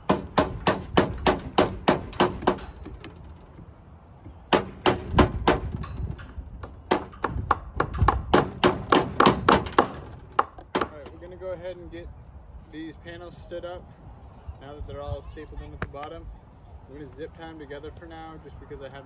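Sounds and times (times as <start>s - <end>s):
hammer striking staples into wood: 0.0s - 3.0s, 4.5s - 11.0s.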